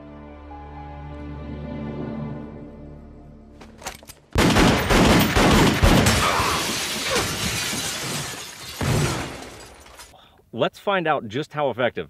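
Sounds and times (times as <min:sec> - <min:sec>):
pistols firing: 0:04.4 - 0:06.4
glass shattering and falling: 0:05.2 - 0:10.2.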